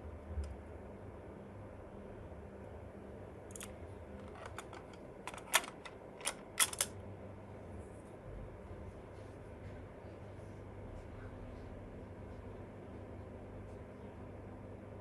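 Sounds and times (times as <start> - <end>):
faint steady hum: 0.0 - 15.0
cassette tape plastic clicks: 4.3 - 6.9.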